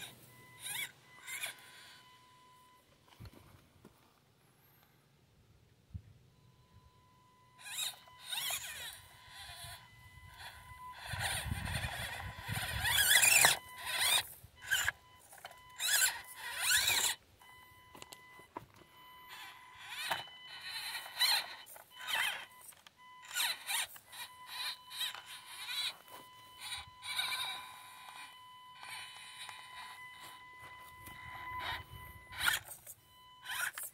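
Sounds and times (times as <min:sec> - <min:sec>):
electric motor and gearbox whining: 0:00.0 - 0:04.1, 0:07.4 - 0:33.9
tyres clicking and scraping on rock: 0:10.4 - 0:17.2.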